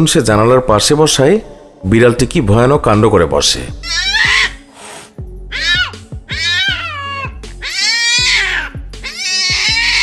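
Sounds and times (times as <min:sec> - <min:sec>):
background music with steady beat: 0:00.0 - 0:10.0
cat yowling: 0:03.8 - 0:04.6, 0:05.5 - 0:10.0.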